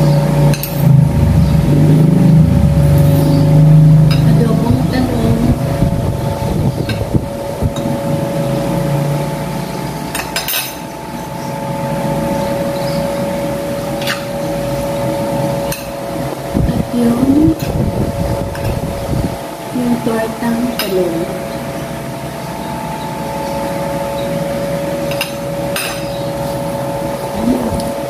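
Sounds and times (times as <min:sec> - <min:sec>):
steady hum: 0:00.0 - 0:28.0
cutlery clinking on a plate: 0:10.1 - 0:10.8.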